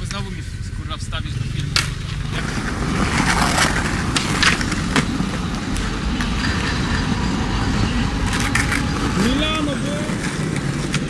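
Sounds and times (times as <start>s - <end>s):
skateboard clacks: 1.6s - 7.1s, 8.2s - 11.0s
skateboard wheels rolling on stone: 1.6s - 11.0s.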